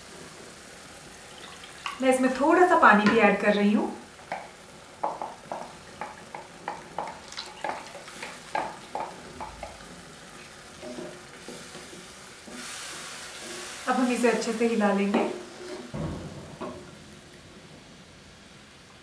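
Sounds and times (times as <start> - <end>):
paste sizzling in pan: 0.0 - 16.0
spatula knocking against pan: 4.3 - 9.9.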